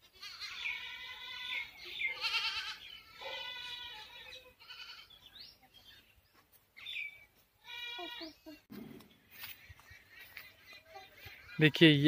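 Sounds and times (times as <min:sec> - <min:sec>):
farm animals calling: 0:00.1 - 0:06.0, 0:06.8 - 0:08.6.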